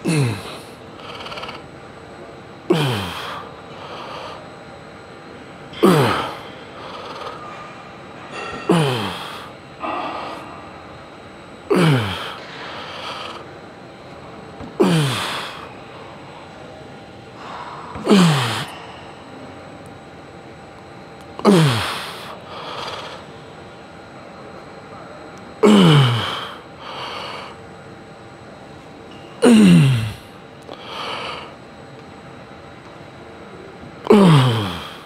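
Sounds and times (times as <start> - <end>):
man groaning with effort: 0.0 - 0.8, 2.7 - 3.4, 5.8 - 6.4, 8.6 - 10.4, 11.7 - 12.4, 14.8 - 15.7, 18.0 - 18.7, 21.4 - 22.4, 25.6 - 26.6, 29.4 - 30.3, 34.0 - 35.0.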